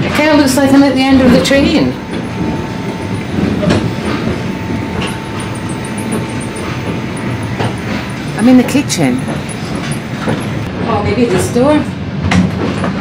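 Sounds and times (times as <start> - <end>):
train wheels clacking on rails: 0.0 - 13.0
faint steady whine: 0.3 - 10.7.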